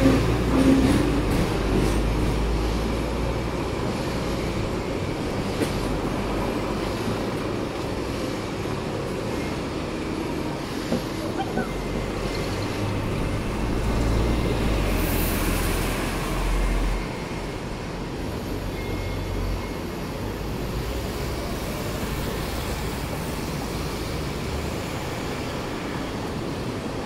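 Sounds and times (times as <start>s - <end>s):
street traffic: 0.0s - 27.0s
tram ride rumble: 0.0s - 27.0s.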